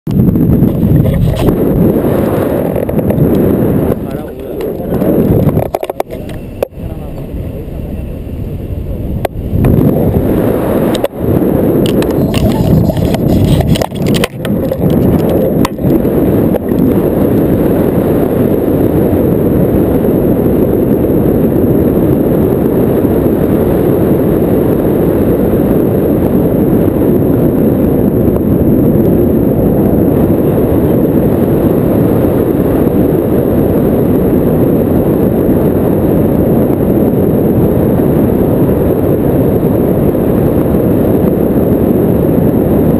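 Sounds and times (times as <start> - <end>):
wind rushing over microphone: 0.1 - 42.9.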